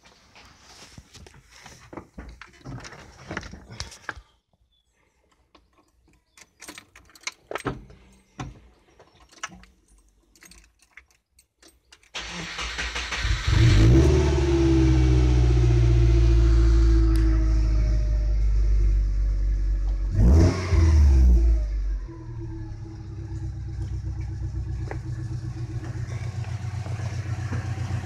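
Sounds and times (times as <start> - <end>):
engine cranking and starting: 12.1 - 15.7, 22.1 - 28.0
engine idling: 21.8 - 28.0.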